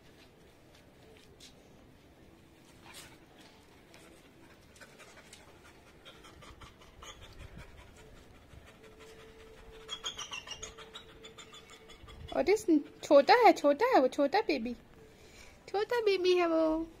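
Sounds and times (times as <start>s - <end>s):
dog panting: 2.8s - 13.8s.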